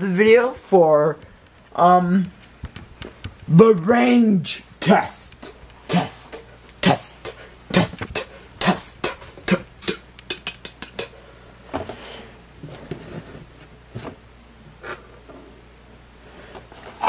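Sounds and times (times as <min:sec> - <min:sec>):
cardboard rustling: 0:11.8 - 0:14.2.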